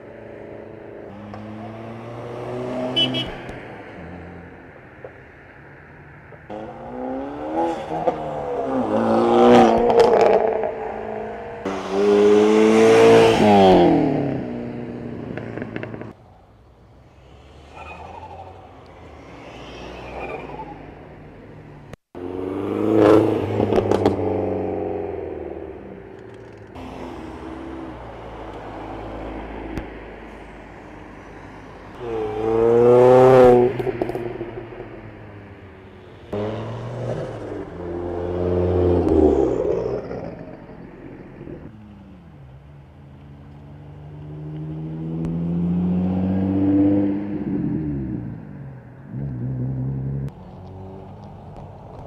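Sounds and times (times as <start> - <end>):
cars driving past and accelerating: 0.0 - 52.0
car engine revving: 6.5 - 16.2, 17.2 - 30.0, 31.4 - 52.0.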